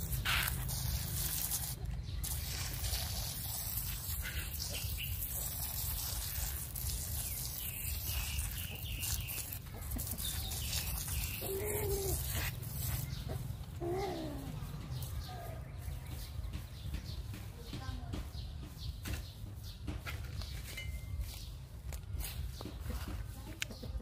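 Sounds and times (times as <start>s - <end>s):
water spraying from hose nozzle: 0.0s - 15.5s
farm birds calling: 8.2s - 17.8s.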